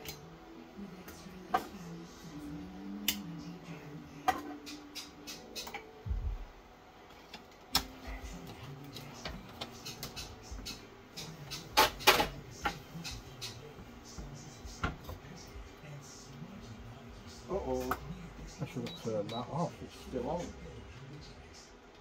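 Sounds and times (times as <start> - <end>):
utensils and dishes clattering: 4.2 - 6.0, 7.1 - 13.7.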